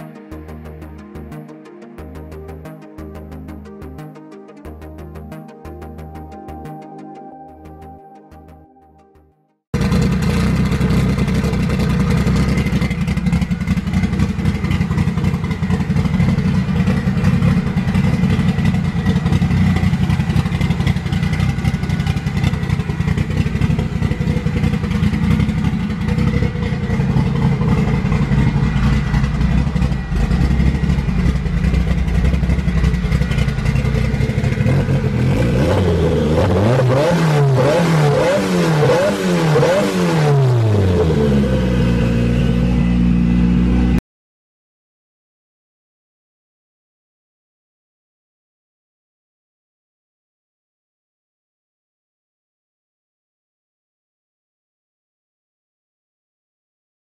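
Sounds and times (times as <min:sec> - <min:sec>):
car engine idling and revving: 0:09.8 - 0:44.0.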